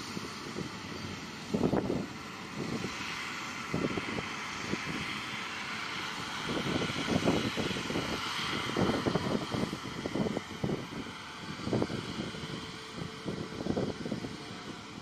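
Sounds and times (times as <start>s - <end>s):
combine harvester running: 0.0s - 15.0s.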